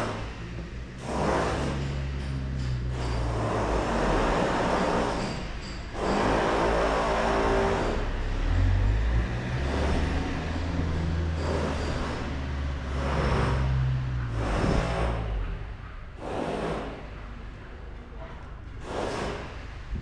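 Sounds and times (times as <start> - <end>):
vehicle engine humming: 7.4 - 16.2.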